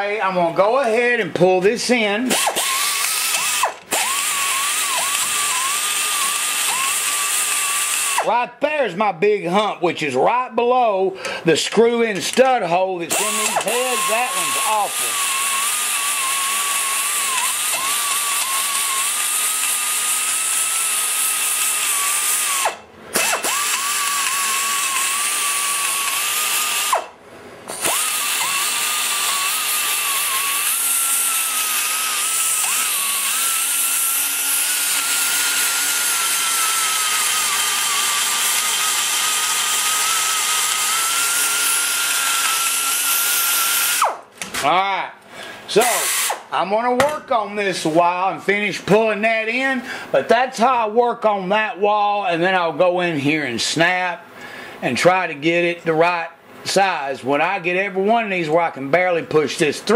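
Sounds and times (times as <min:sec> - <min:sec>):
pneumatic die grinder whining: 0:02.3 - 0:08.4, 0:13.1 - 0:44.6, 0:45.7 - 0:46.5.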